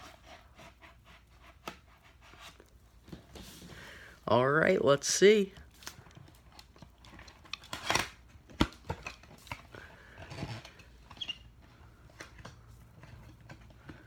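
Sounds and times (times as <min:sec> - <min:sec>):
packaging clicks and snaps: 0:05.7 - 0:11.3.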